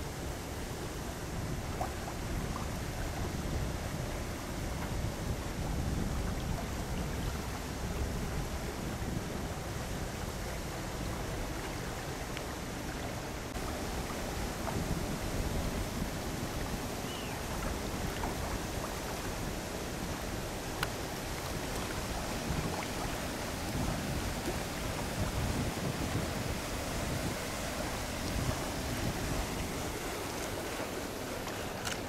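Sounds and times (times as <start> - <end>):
waves lapping: 0.0 - 32.0
wind buffeting microphone: 0.8 - 12.1, 12.9 - 32.0.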